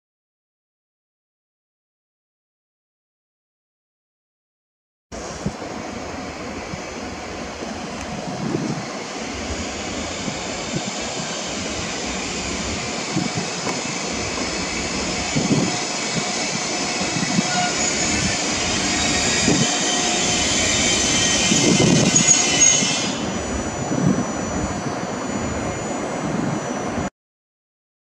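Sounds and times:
electric locomotive motors whining: 0:05.2 - 0:27.1
wheels rumbling and knocking on track: 0:06.4 - 0:24.7.

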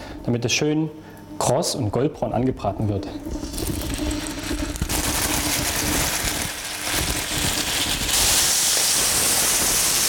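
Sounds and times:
meat sizzling in a frying pan: 0:04.1 - 0:10.0.

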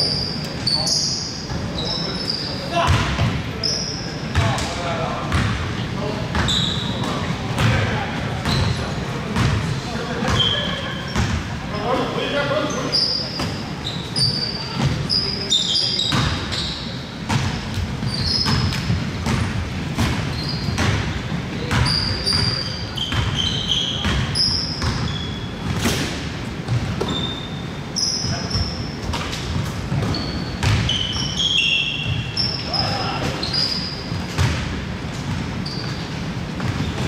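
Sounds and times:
sneakers squeaking: 0:00.0 - 0:37.0
basketball bouncing on court: 0:02.8 - 0:03.4, 0:04.3 - 0:05.7, 0:06.3 - 0:11.5, 0:14.6 - 0:15.2, 0:16.1 - 0:27.6, 0:28.2 - 0:32.8, 0:34.1 - 0:37.0.

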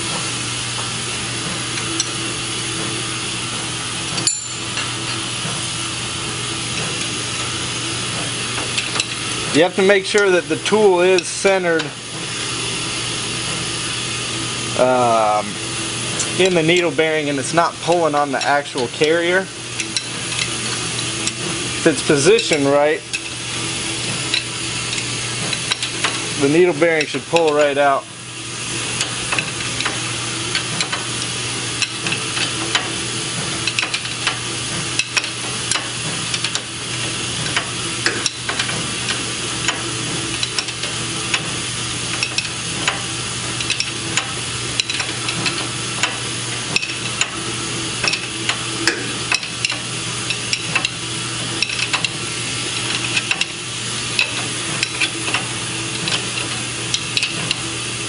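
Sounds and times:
wrench clicking and scraping: 0:24.3 - 0:26.2, 0:33.6 - 0:34.4, 0:35.0 - 0:36.7, 0:37.4 - 0:41.4, 0:42.1 - 0:47.4, 0:48.0 - 0:51.0, 0:51.6 - 0:53.6, 0:54.2 - 0:57.6.

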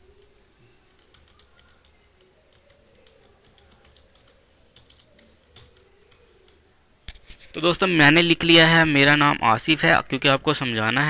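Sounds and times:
faint keyboard typing: 0:00.0 - 0:07.7.

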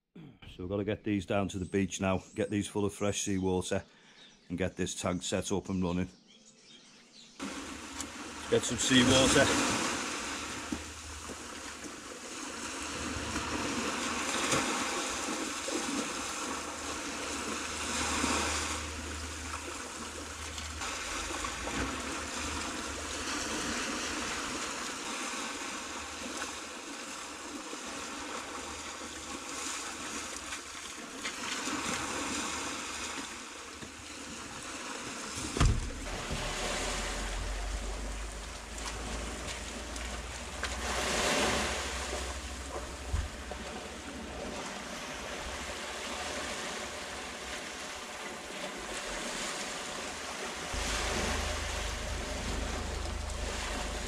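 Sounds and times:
small waves rushing: 0:07.4 - 0:54.0
sharp knock: 0:35.5 - 0:38.9
wind buffeting microphone: 0:50.7 - 0:54.0.

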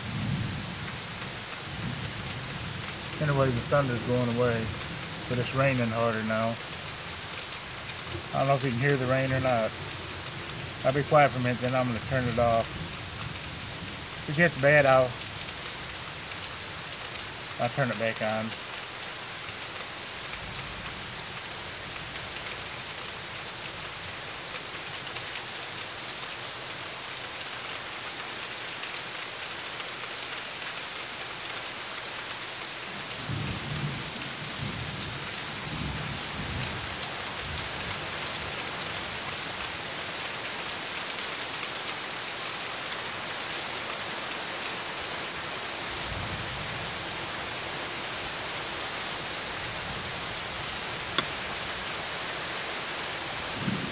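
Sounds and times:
hard rain falling: 0:00.0 - 0:53.9
low thunder rumbles: 0:53.5 - 0:53.9.

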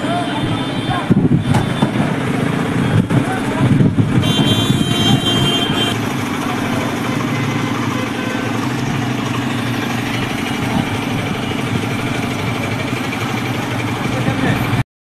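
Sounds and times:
vehicle engine running: 0:00.0 - 0:14.8
high horn-like tone: 0:04.2 - 0:06.0.

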